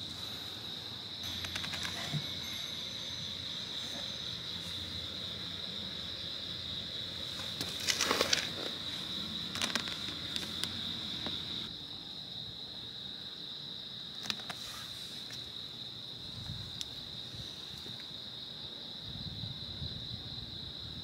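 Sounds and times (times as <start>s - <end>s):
crickets chirring: 0.0s - 21.0s
rustling scuffs: 7.3s - 10.6s.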